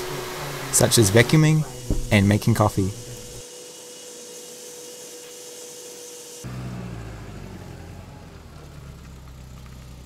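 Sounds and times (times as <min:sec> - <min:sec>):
car engine humming: 0:00.0 - 0:03.4, 0:06.4 - 0:10.0
espresso machine whine and hiss: 0:00.0 - 0:08.4.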